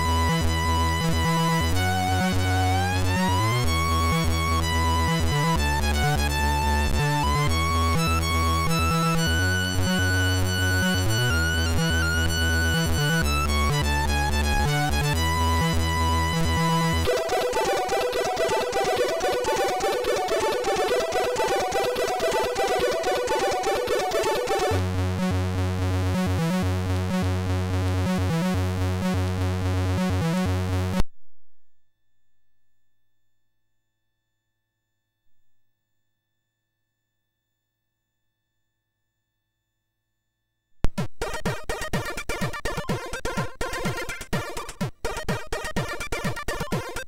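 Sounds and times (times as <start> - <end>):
chiptune music: 0.0 - 27.3, 40.9 - 47.0.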